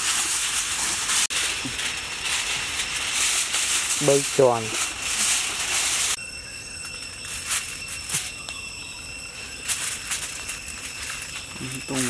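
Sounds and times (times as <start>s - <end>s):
aluminium foil crinkling: 0.0s - 6.2s, 6.8s - 8.6s, 9.2s - 12.0s
insects trilling: 0.0s - 12.0s.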